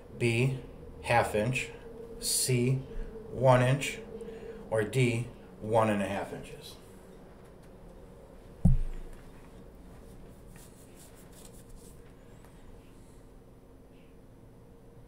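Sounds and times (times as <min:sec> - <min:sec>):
low thump: 0:08.6 - 0:09.1.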